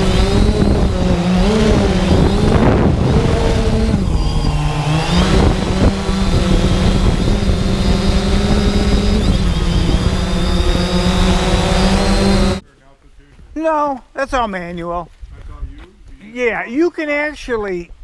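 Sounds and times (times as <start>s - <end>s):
drone motors buzzing: 0.0s - 12.6s
rush of wind: 0.0s - 12.6s.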